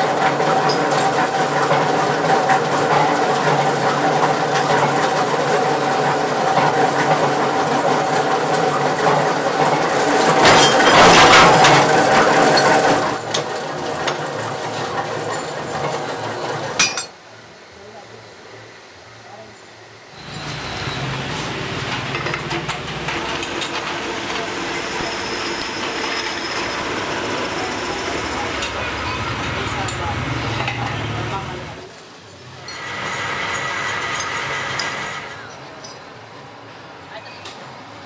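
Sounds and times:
metal press running: 0.0 - 17.1, 20.2 - 31.7.

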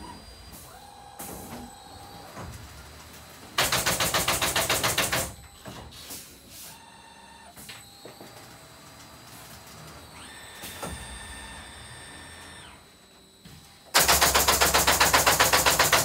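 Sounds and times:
fast mechanical rattle: 14.0 - 16.0
machine clicks and knocks: 14.0 - 16.0.

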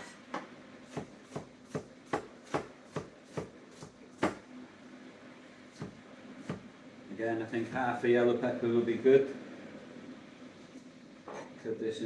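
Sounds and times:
knife chopping on plastic board: 0.9 - 4.4.

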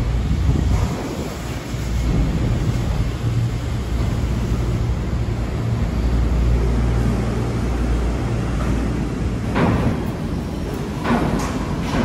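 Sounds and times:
monorail car rumbling overhead: 0.0 - 12.0.

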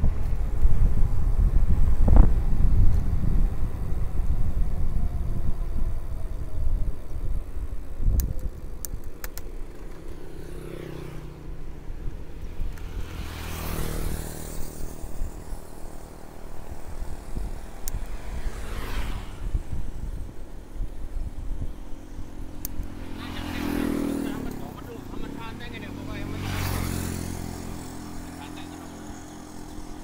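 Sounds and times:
wind buffeting microphone: 0.0 - 28.4
motor vehicle passing: 0.0 - 30.0
tyre and road rumble: 0.0 - 30.0
sharp clicks: 8.1 - 10.1, 17.8 - 18.2, 22.6 - 22.9.

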